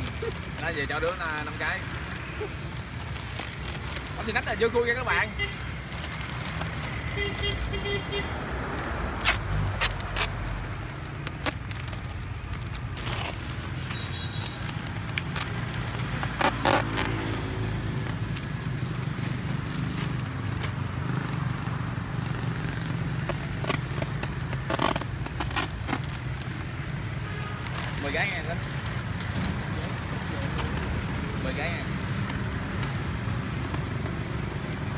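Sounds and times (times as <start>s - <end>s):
plastic packaging crinkling: 0.0s - 8.0s, 9.3s - 20.8s, 23.3s - 28.4s
road traffic rumble: 0.0s - 34.9s.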